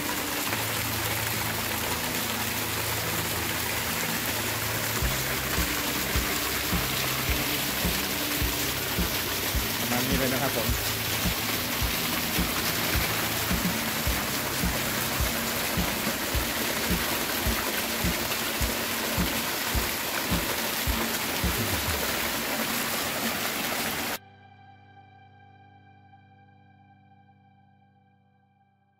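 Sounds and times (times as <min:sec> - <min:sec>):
soft piano music: 0:00.0 - 0:20.6
water jet gushing into tub: 0:00.0 - 0:24.2.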